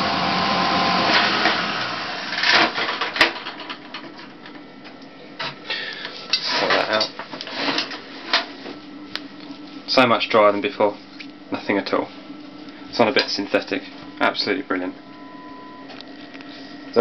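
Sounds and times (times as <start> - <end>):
spin dryer winding down: 0.0 - 4.6.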